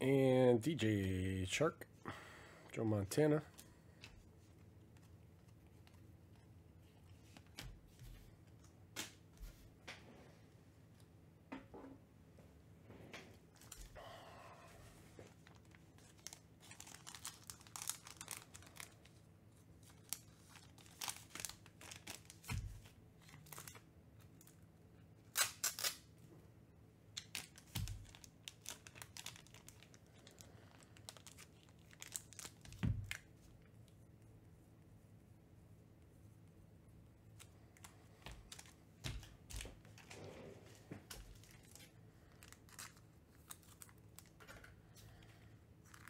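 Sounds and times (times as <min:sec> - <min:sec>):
cards rustling: 0:15.2 - 0:19.2, 0:19.8 - 0:24.6, 0:40.7 - 0:46.0
foil wrappers tearing and crinkling: 0:15.4 - 0:19.2, 0:19.8 - 0:23.8, 0:25.3 - 0:26.1, 0:27.2 - 0:33.2, 0:41.2 - 0:44.4.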